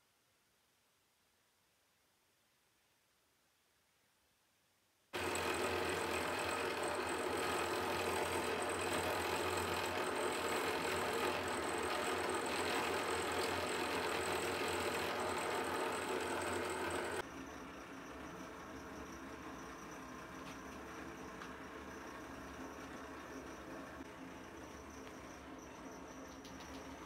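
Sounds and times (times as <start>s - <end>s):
spinning disc machine humming: 5.2s - 27.0s.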